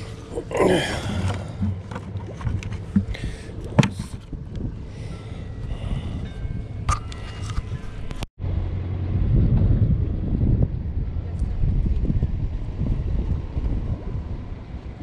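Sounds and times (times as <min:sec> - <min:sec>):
wind rumbling on microphone: 0:00.0 - 0:15.0
bucket handling clicks and knocks: 0:01.2 - 0:04.3.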